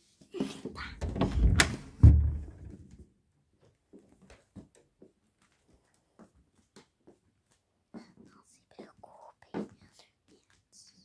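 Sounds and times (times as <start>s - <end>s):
loud thump: 1.0s - 2.8s.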